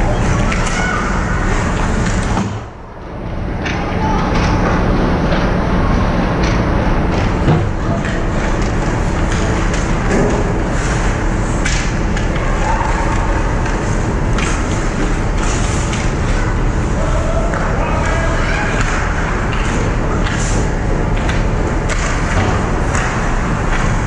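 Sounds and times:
low rink rumble: 0.0 - 24.0
sticks and puck clacking: 0.1 - 2.6, 3.6 - 24.0
skate blades scraping ice: 10.6 - 11.9.

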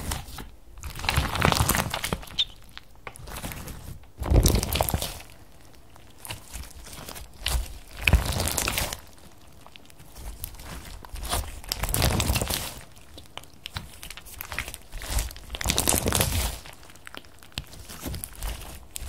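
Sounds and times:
bead slime crackling and clicking: 1.1 - 3.2.

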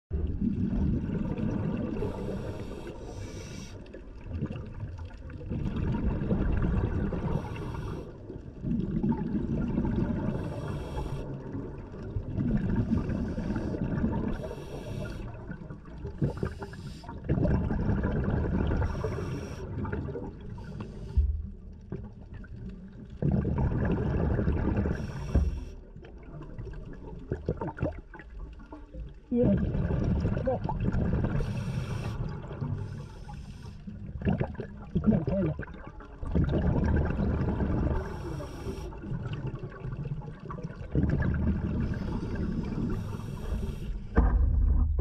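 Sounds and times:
regulator inhalation hiss: 2.1 - 3.8, 10.4 - 11.3, 14.4 - 15.3, 16.4 - 17.1, 18.9 - 19.6, 31.4 - 33.8, 38.0 - 39.0, 41.9 - 44.1
bubbling exhalations: 23.2 - 25.4, 29.3 - 45.0.

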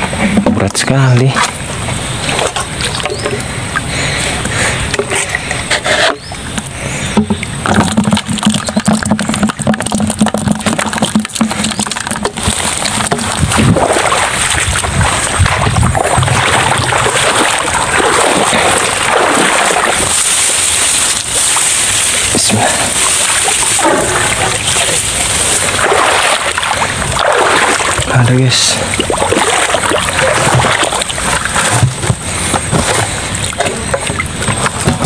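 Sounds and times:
water pouring into bucket: 7.6 - 35.0
rustle of tall grass: 19.6 - 25.8.

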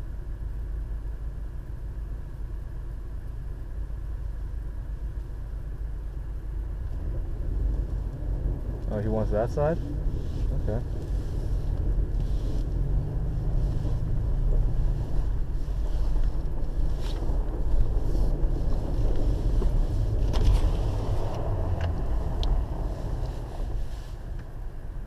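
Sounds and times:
car engine and tyres rumbling: 0.0 - 25.0.

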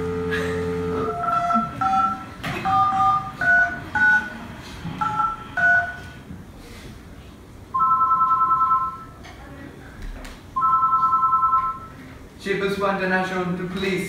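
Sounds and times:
phone keypad dialling tones: 7.8 - 9.1, 10.6 - 11.9.

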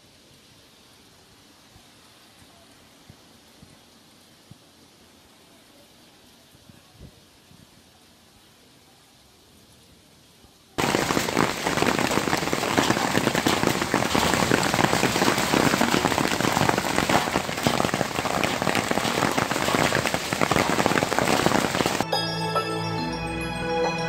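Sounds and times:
faint hiss: 0.0 - 22.0
hail and heavy rain pelting: 10.8 - 22.0.

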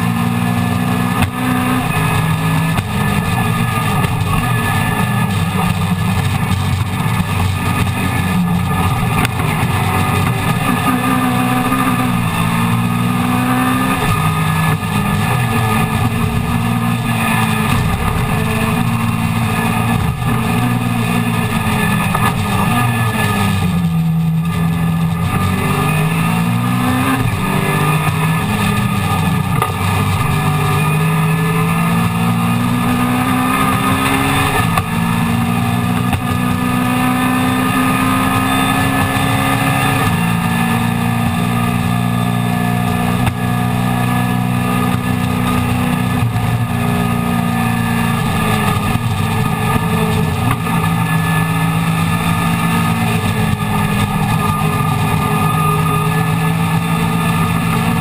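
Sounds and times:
race car engine revving hard: 0.0 - 58.0.

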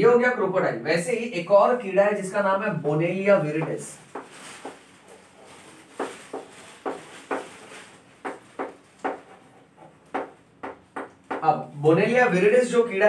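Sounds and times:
chalk writing on a chalkboard: 8.2 - 10.3.

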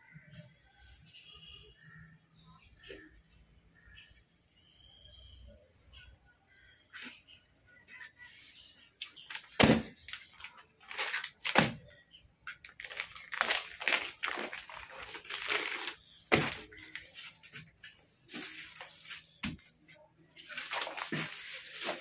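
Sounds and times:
plastic bag crinkling: 9.3 - 11.7, 12.6 - 17.2, 18.2 - 19.7, 20.4 - 22.0.

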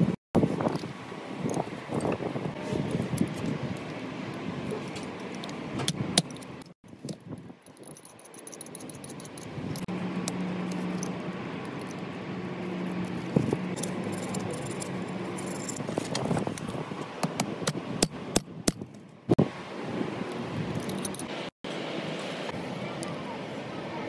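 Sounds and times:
metal tool parts clinking: 6.2 - 9.9, 13.0 - 16.2, 20.8 - 21.3
steady low hum: 8.4 - 18.4.

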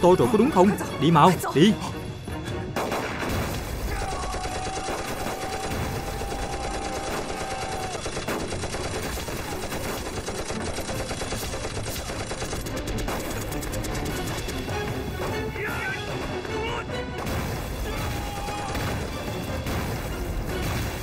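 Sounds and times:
rapid gunfire bursts: 2.8 - 14.7, 17.2 - 21.0.

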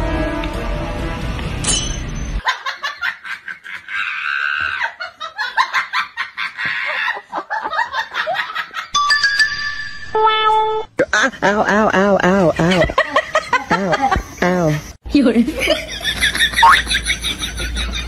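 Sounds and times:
person laughing: 11.0 - 14.9, 15.6 - 18.0.

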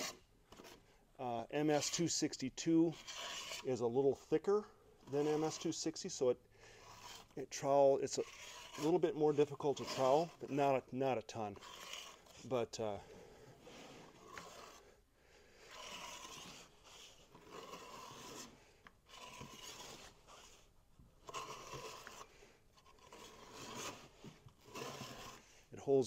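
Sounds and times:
trowel scraping adhesive on floor: 0.0 - 0.8, 2.9 - 3.8, 5.0 - 12.6, 13.5 - 14.9, 15.6 - 25.5.

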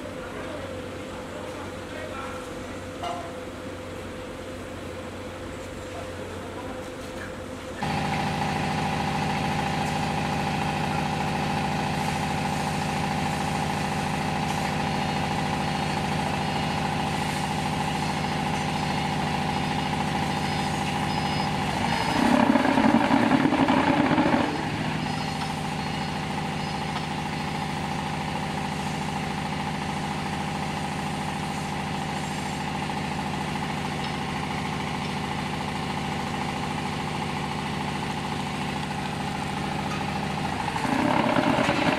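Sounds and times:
small diesel engine running: 7.4 - 41.9.

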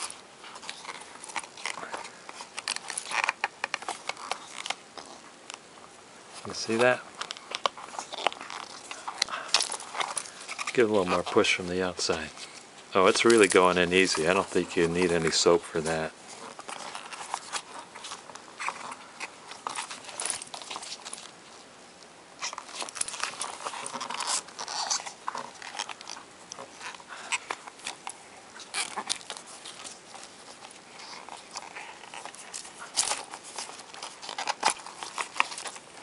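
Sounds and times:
hands rubbing rubber mask: 0.0 - 21.7, 22.4 - 36.0.

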